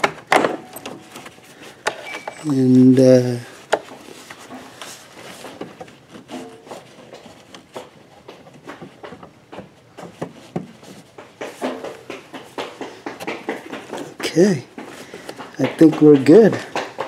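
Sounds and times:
glove rubbing on parts: 0:01.0 - 0:17.0.

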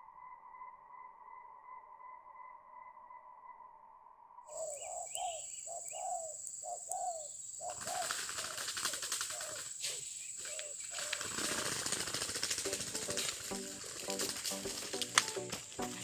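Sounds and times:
doves cooing: 0:04.5 - 0:16.0
wings fluttering on dry fronds: 0:07.7 - 0:16.0.

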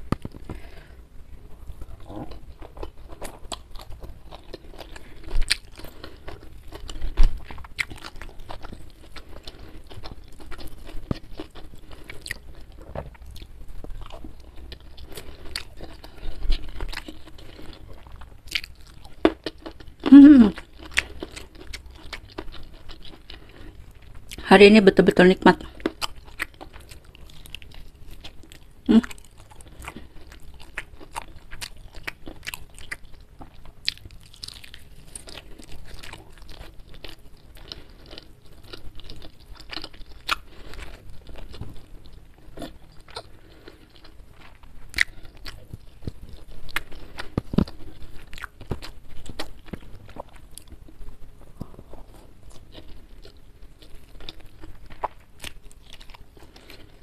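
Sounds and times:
person chewing and crunching food: 0:00.0 - 0:24.4, 0:25.5 - 0:57.0.

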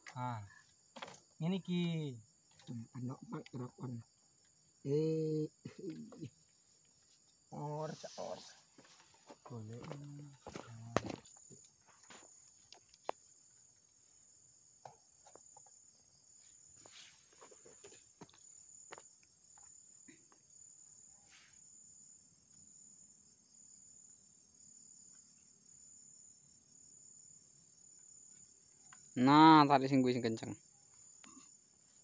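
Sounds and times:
insects chirring: 0:00.0 - 0:32.0.

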